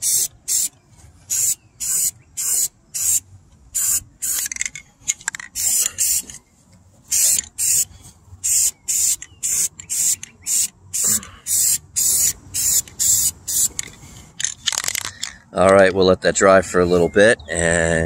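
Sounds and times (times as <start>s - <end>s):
spray paint can hissing: 0.0s - 0.7s, 1.3s - 3.2s, 3.8s - 4.6s, 5.5s - 6.4s, 7.1s - 13.9s.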